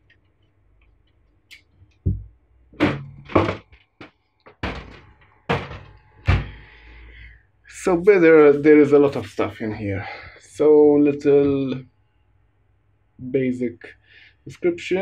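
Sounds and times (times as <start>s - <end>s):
metal case cover thunks and knocks: 2.1s - 3.7s, 4.5s - 6.6s.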